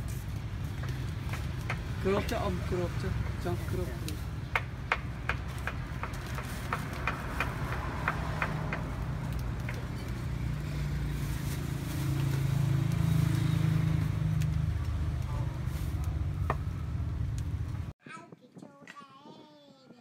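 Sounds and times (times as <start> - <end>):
vehicle engine rumble: 0.0 - 18.0.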